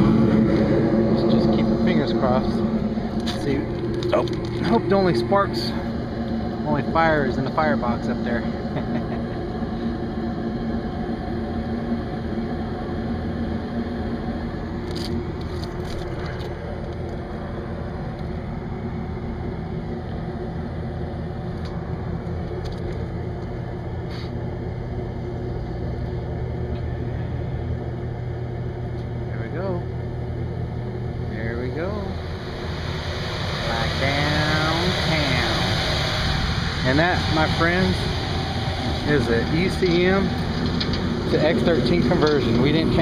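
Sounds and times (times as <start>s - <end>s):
deep blower hum: 0.0s - 43.0s
hvac unit hum and rumble: 0.0s - 43.0s.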